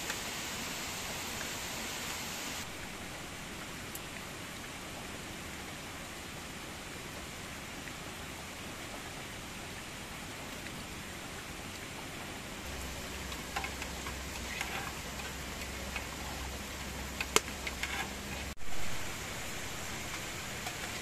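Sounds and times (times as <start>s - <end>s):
wood fire crackling: 0.0s - 4.2s, 9.0s - 21.0s
rain: 0.0s - 21.0s
running water: 0.0s - 21.0s.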